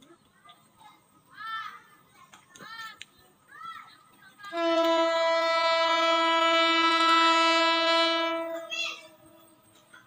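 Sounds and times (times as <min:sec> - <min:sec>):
locomotive air horn blast: 0:04.5 - 0:09.6.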